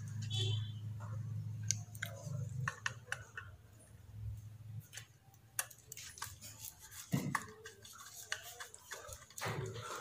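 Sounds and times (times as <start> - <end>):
screwdriver clicking and scraping: 4.8 - 10.0.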